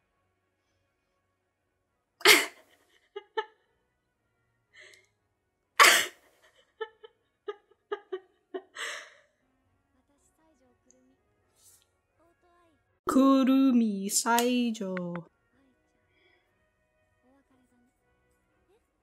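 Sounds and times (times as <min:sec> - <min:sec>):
person laughing: 0:02.2 - 0:03.6, 0:06.4 - 0:09.2.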